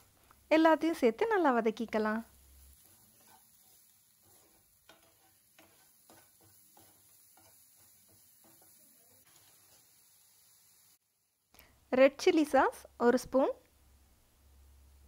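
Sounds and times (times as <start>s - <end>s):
wooden spatula scraping a pan: 1.8s - 10.0s.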